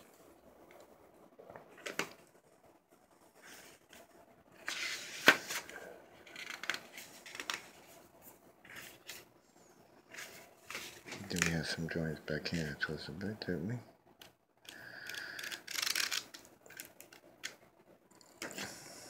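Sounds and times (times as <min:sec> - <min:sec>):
sketchbook pages turning: 0:03.3 - 0:09.3, 0:10.1 - 0:11.9.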